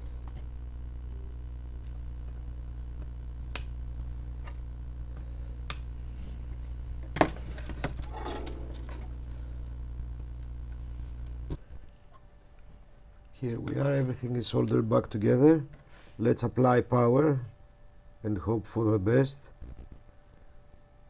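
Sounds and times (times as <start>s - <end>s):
steady low hum: 0.0s - 21.0s
side cutters snipping wire: 3.5s - 3.8s, 5.6s - 5.9s.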